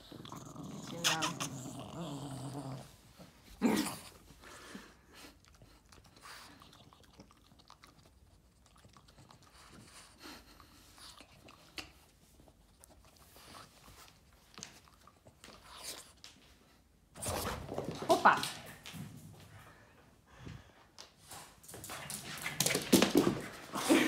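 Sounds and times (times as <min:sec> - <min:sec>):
dog chewing a treat: 0:05.1 - 0:13.7.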